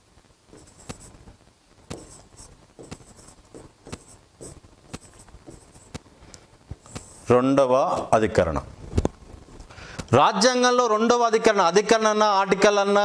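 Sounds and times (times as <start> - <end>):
scratchy writing strokes: 0.5 - 1.3, 1.9 - 6.1, 6.8 - 7.3
sharp taps: 2.8 - 6.0.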